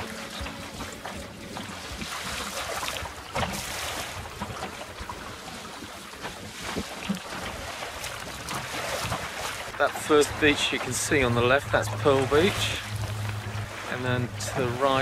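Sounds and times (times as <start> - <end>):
wind on microphone: 0.0 - 9.8
water splashing along hull: 0.0 - 15.0.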